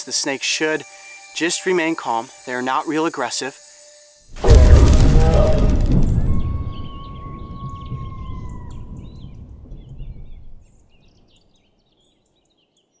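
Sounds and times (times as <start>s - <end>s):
low rumble: 4.3s - 10.6s.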